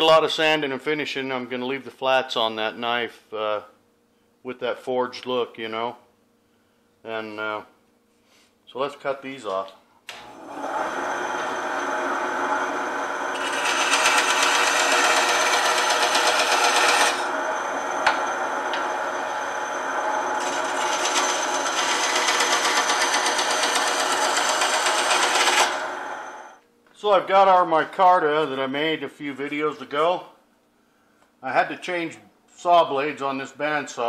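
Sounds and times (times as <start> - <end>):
bandsaw cutting wood: 10.2 - 26.4.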